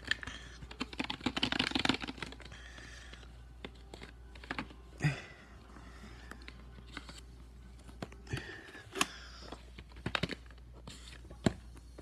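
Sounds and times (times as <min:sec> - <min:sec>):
paper rustling: 0:06.2 - 0:08.6.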